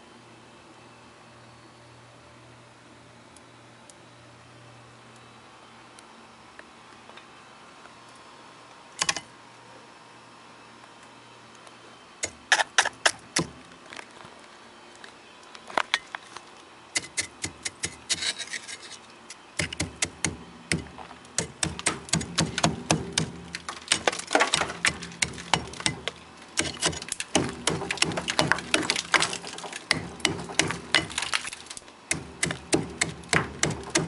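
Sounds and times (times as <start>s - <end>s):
pick hammer chipping ice: 12.2s - 13.6s, 17.0s - 18.8s, 19.6s - 34.0s
ice chips crunching and falling: 23.5s - 31.9s.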